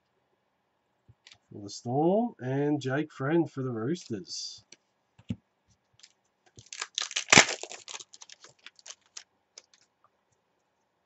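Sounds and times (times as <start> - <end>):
trading cards snapping and rustling: 6.0 - 9.8.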